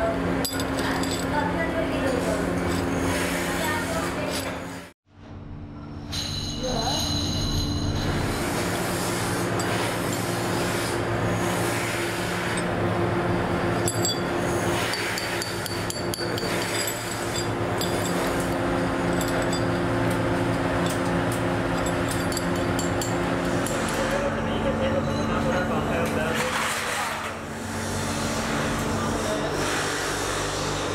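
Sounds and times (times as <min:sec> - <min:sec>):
steady machine hum: 0:00.0 - 0:26.3
metal parts clinking and scraping: 0:00.4 - 0:04.6, 0:09.5 - 0:10.6, 0:13.7 - 0:24.2.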